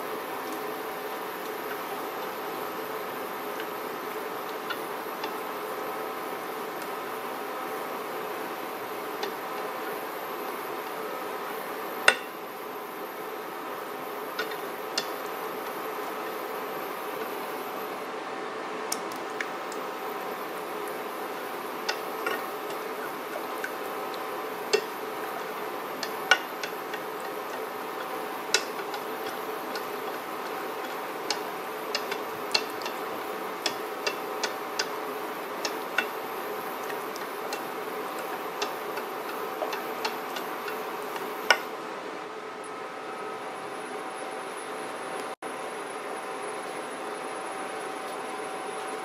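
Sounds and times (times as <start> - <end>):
whisk ticking against a pan: 0.0 - 11.0, 12.0 - 12.4, 13.7 - 17.6, 19.4 - 41.7
induction cooktop hum and whine: 0.0 - 49.0.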